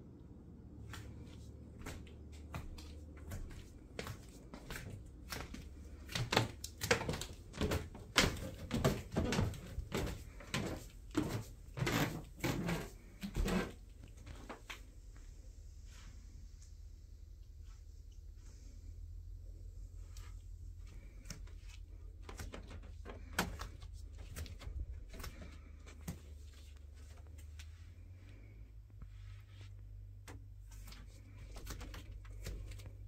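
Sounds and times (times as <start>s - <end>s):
low steady rumble: 0.0s - 33.0s
footsteps on wooden floor: 1.0s - 14.9s, 21.0s - 27.8s
footsteps on wooden stairs: 1.8s - 14.7s.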